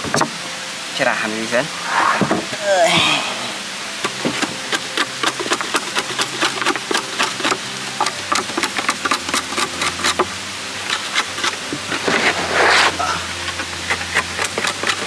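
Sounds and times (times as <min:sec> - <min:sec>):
machete scraping wooden plank: 0:01.8 - 0:02.6, 0:10.9 - 0:15.0.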